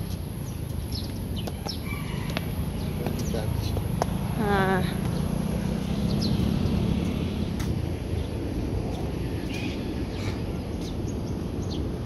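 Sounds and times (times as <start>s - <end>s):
low outdoor rumble: 2.3s - 12.0s
bird chirps: 5.1s - 6.8s.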